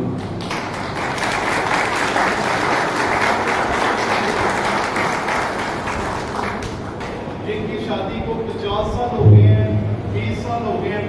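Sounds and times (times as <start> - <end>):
audience applauding: 0.2 - 7.2.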